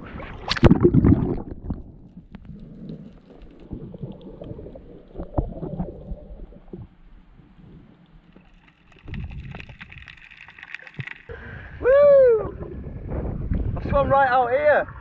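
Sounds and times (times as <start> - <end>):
underwater bubbling: 0.0 - 11.8, 12.4 - 13.8
splash into water: 0.1 - 1.7.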